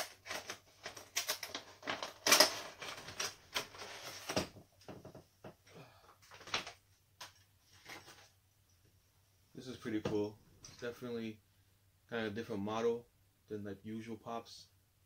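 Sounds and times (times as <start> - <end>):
plastic packaging rustling: 0.0 - 4.6.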